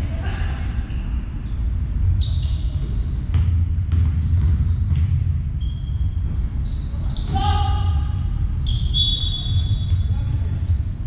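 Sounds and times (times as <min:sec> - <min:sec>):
sneaker squeaks: 0:00.0 - 0:11.0
basketball bouncing: 0:02.7 - 0:05.4.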